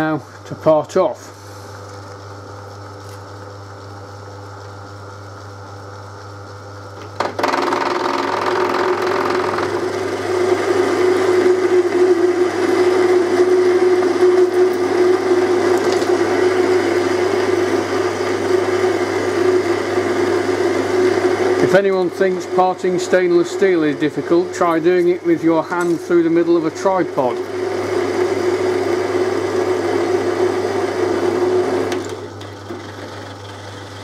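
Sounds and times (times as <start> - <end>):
lathe running: 7.0 - 34.0.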